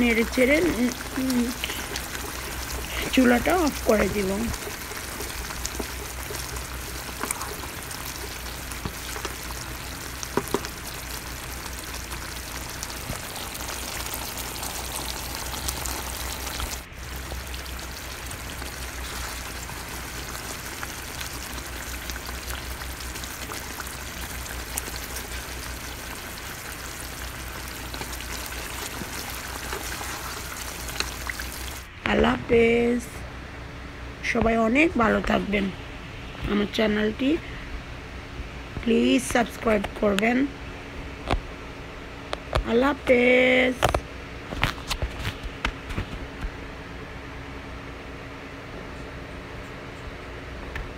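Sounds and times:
pickle bubbling and sizzling: 0:00.0 - 0:32.0
steady low hum: 0:00.0 - 0:50.9.

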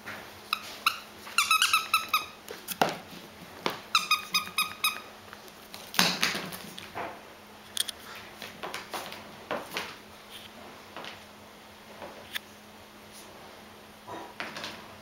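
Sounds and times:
squeaky toy squeaking: 0:00.5 - 0:02.4, 0:03.9 - 0:05.1.

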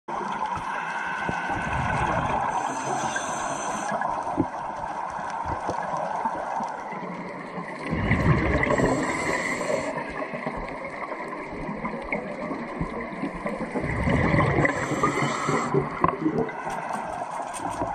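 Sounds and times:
exhaled bubbles rushing: 0:00.1 - 0:17.1
diver breathing through regulator: 0:00.6 - 0:04.1, 0:08.5 - 0:10.1, 0:14.3 - 0:16.0.

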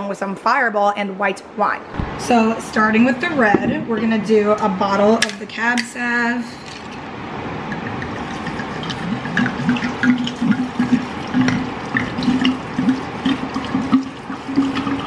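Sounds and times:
bottle neck gurgling: 0:07.6 - 0:15.0
wine pouring into a jar: 0:07.7 - 0:15.0.

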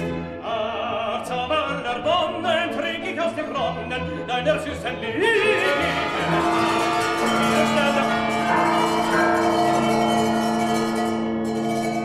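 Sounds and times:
orchestra playing held chords: 0:05.1 - 0:12.0.

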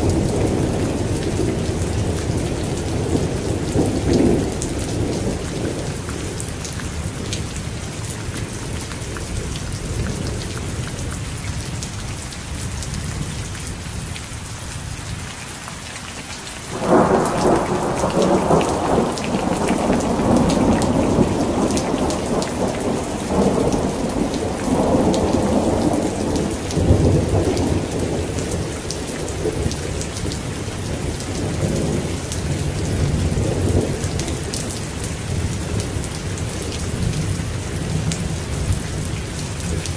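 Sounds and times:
heavy rain falling: 0:00.0 - 0:39.9
thunder clap rumbling: 0:16.7 - 0:34.8.

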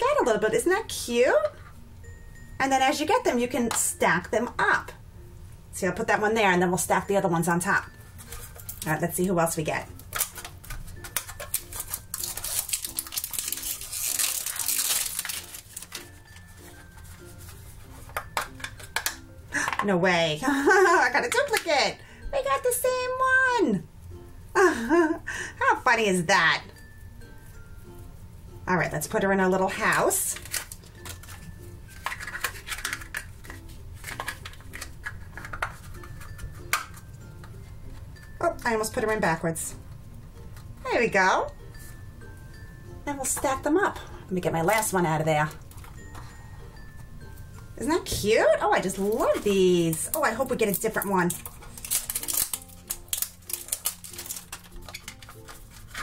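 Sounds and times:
foil wrapper crinkling and tearing: 0:09.9 - 0:17.5, 0:30.2 - 0:36.4, 0:48.9 - 0:56.0
plastic pieces clicking and scraping: 0:10.0 - 0:16.2, 0:30.3 - 0:37.0, 0:48.9 - 0:56.0.

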